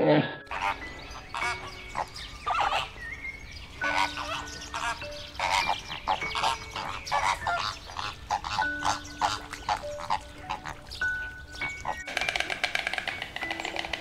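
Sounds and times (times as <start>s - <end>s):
soft background music: 0.0s - 14.0s
flamingos honking: 0.4s - 14.0s.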